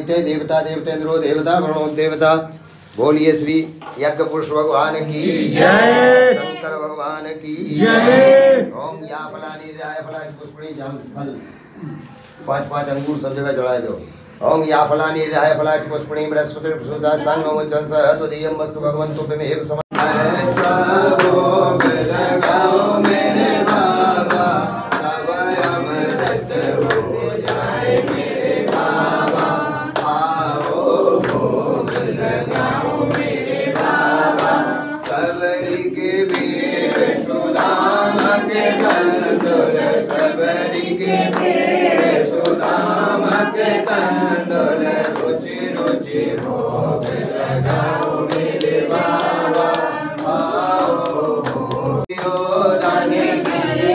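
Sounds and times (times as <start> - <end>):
voices singing together: 3.9 - 13.2, 13.8 - 53.9
percussion beat: 19.9 - 53.9.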